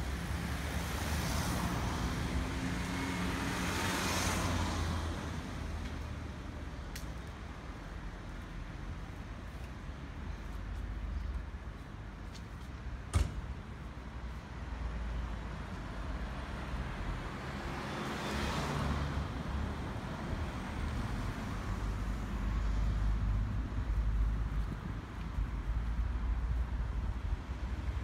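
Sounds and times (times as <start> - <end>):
low traffic rumble: 0.0 - 28.0
car passing by: 0.2 - 6.3, 16.2 - 24.5.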